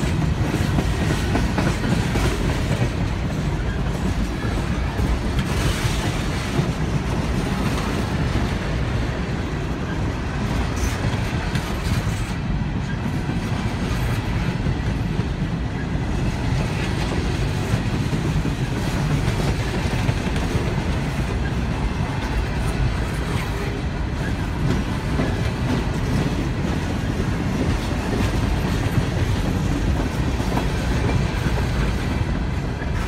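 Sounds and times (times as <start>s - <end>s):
train cars rolling on rails: 0.0s - 33.0s.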